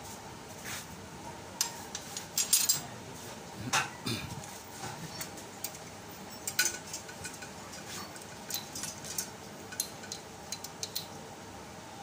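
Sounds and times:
light metallic clicks and clinks: 5.2 - 11.2.

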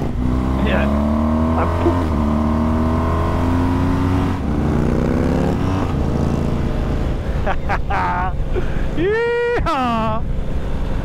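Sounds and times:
motorcycle engine accelerating: 0.0 - 8.5.

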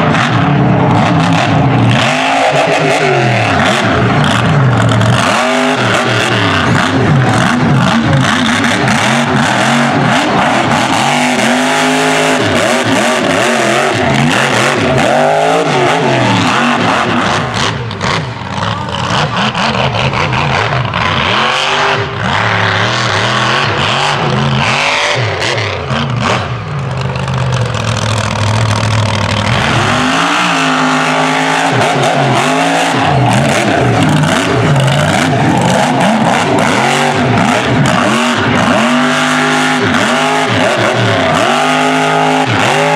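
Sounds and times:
truck engine revving hard: 0.0 - 42.9
tyres spinning in dirt: 26.0 - 42.9.

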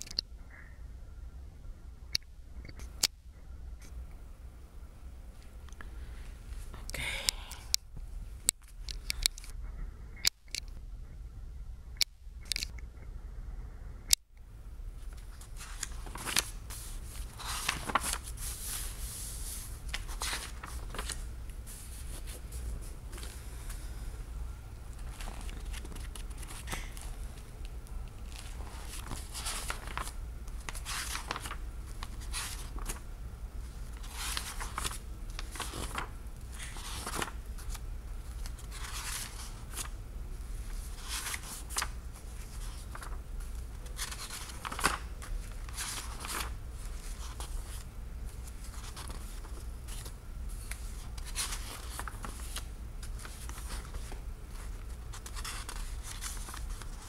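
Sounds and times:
book pages turning: 15.0 - 23.9, 24.9 - 33.0, 33.6 - 57.0.

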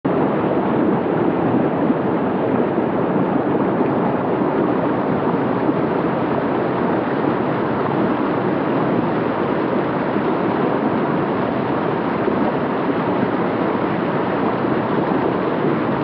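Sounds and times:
water rushing over boulders: 0.1 - 16.0.

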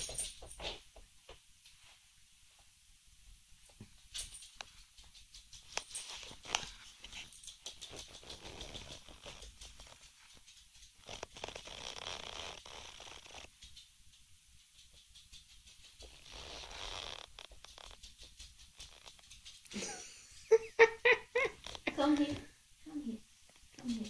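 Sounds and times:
small clicks and ticks: 3.7 - 20.6, 21.4 - 22.4.

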